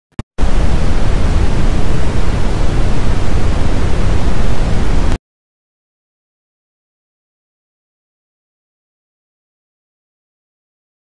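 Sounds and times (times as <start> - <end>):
television static hiss: 0.4 - 5.2.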